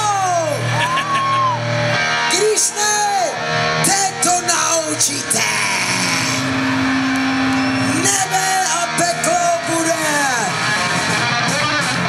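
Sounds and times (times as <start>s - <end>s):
live rock band: 0.0s - 12.0s
person singing: 3.9s - 6.6s.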